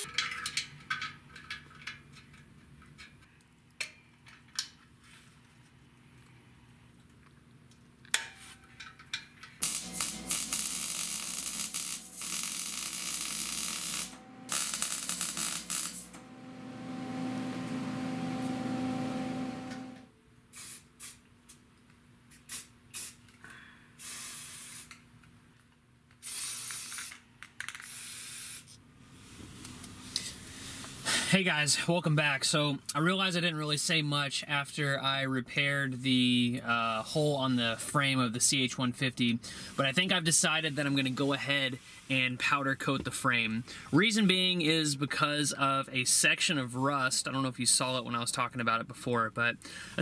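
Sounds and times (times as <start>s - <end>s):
welder crackling: 9.6s - 20.1s
aerosol spray can hissing: 24.0s - 25.0s, 26.2s - 27.1s, 27.8s - 28.6s.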